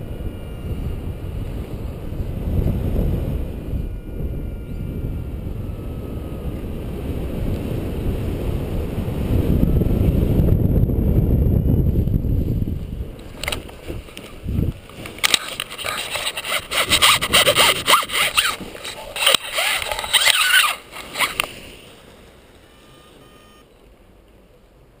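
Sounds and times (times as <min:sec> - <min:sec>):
wind rushing on microphone: 0:00.0 - 0:21.8
harness scraping and clicking: 0:13.2 - 0:21.6.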